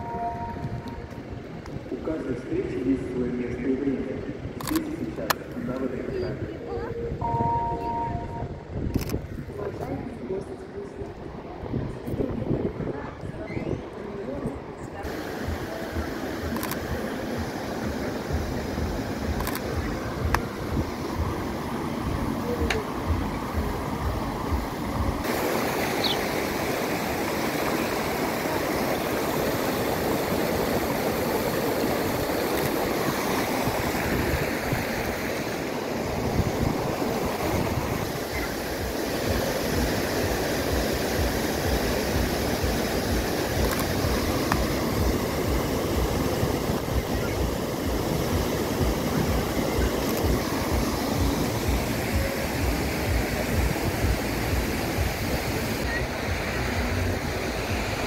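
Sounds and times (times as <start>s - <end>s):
fountain water splashing: 15.0s - 58.0s.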